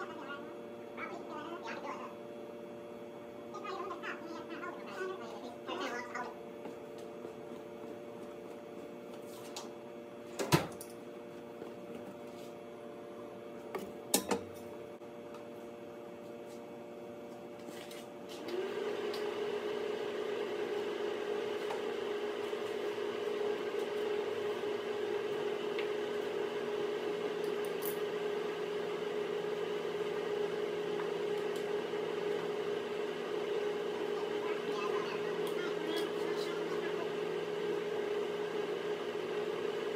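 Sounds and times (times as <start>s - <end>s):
faint hum: 0.0s - 18.2s.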